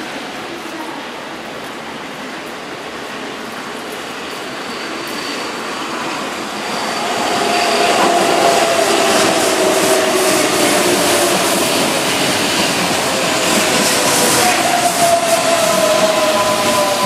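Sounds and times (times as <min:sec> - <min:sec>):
electric train passing: 0:01.4 - 0:17.0
steady whining tone: 0:05.1 - 0:17.0.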